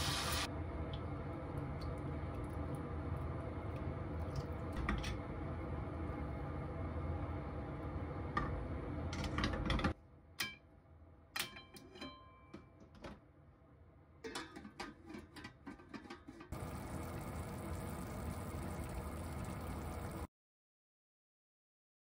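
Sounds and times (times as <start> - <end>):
sauce sizzling in a frying pan: 0.0 - 0.5, 16.6 - 20.3
pan lid clinking: 14.3 - 16.4.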